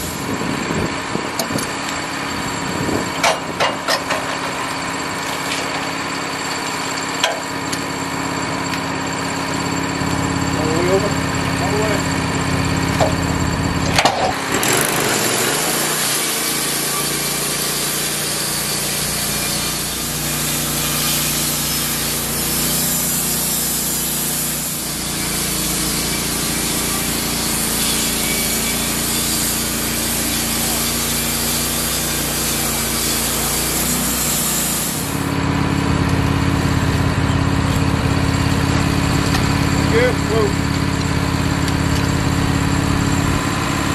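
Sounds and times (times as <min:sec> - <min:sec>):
sawmill engine running: 0:00.0 - 0:43.9
band saw blade sawing: 0:14.1 - 0:35.4.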